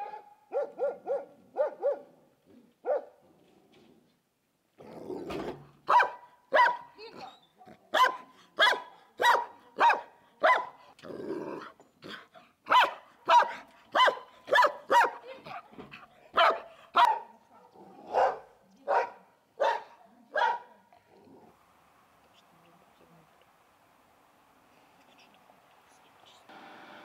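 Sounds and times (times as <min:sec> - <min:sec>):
dog barking: 0:00.0 - 0:02.2, 0:02.8 - 0:03.2, 0:05.9 - 0:07.0, 0:07.6 - 0:10.8, 0:12.7 - 0:15.6, 0:16.3 - 0:20.8.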